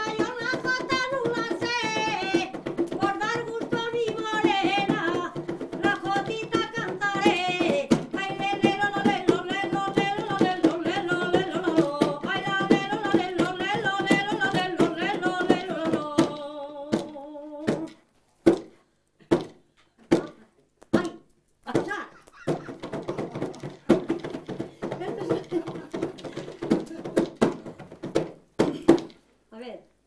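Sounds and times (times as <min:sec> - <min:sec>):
folk singing: 0:00.0 - 0:18.0
frame drums beating: 0:00.0 - 0:29.2
knocks: 0:21.8 - 0:29.2.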